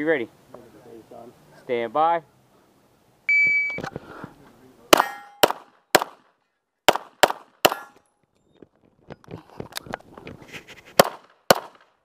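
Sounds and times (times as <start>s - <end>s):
handgun shots: 4.9s - 6.3s, 6.9s - 8.0s, 11.0s - 11.9s
short metallic ring: 5.0s - 5.4s.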